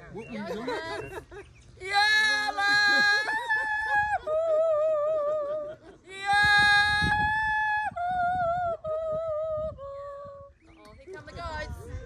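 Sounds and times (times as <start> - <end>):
person yodeling: 1.9 - 10.4.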